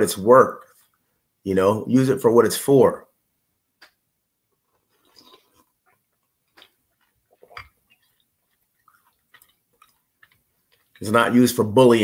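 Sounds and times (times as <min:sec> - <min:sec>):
person chewing: 0:04.5 - 0:11.4
person sipping: 0:04.6 - 0:11.0.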